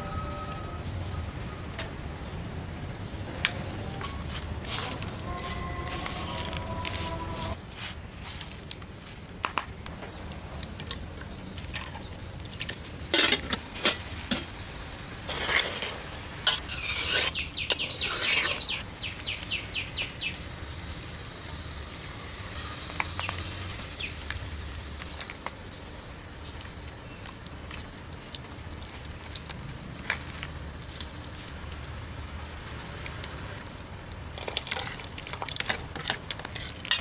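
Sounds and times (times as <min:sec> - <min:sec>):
metal ladle scraping a pot: 0:15.3 - 0:18.8.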